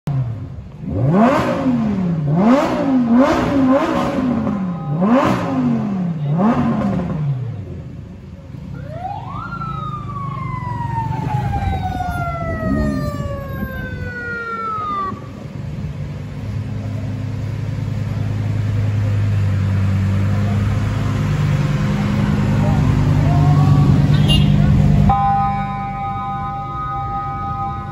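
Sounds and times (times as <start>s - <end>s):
sports car engine revving: 0.1s - 8.2s
siren wailing: 8.7s - 15.4s, 25.1s - 27.9s.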